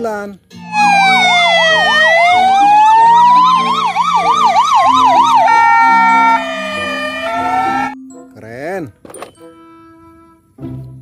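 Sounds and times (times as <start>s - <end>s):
ambulance siren wailing: 0.6s - 8.0s
ambulance siren yelping: 0.6s - 8.0s.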